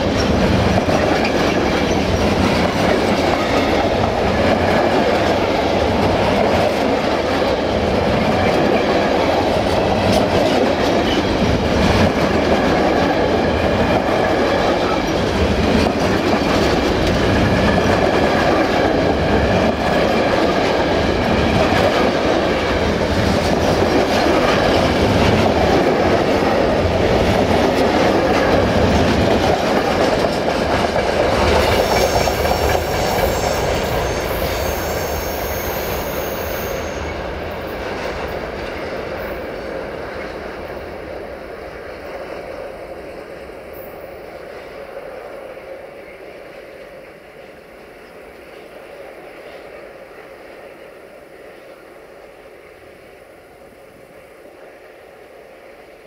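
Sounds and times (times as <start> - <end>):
wheels clickety-clack over rail joints: 0.0 - 45.3
freight train rolling past: 0.0 - 56.0
high wheel squeal: 31.7 - 37.1.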